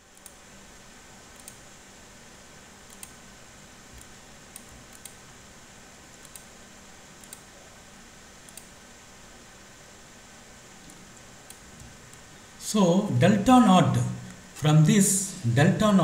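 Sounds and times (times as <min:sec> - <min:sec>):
low microphone hiss: 0:00.0 - 0:16.0
faint irregular clicks: 0:00.1 - 0:00.4, 0:01.3 - 0:01.7, 0:02.8 - 0:03.2, 0:03.9 - 0:05.2, 0:06.1 - 0:06.6, 0:07.2 - 0:07.5, 0:08.4 - 0:08.8.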